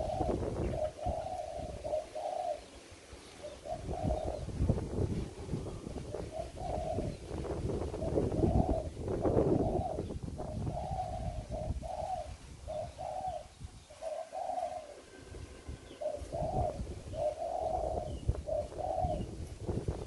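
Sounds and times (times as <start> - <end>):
doves cooing: 0.0 - 20.0.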